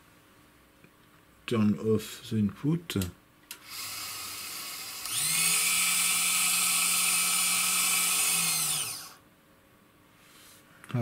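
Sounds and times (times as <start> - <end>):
servo motor whirring and whining: 3.7 - 9.2.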